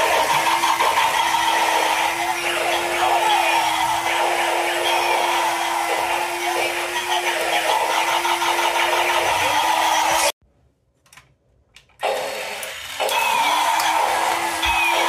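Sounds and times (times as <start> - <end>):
toy robot motors whirring: 12.0 - 15.0.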